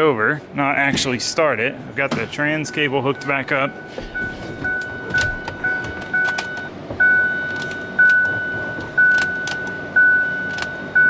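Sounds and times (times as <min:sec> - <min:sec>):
dashboard warning chime dinging: 0:02.5 - 0:11.0.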